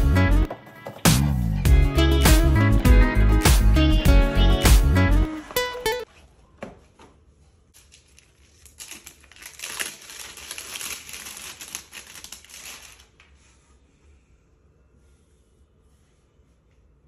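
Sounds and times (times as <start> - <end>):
plastic wrapping crinkling: 7.7 - 13.4.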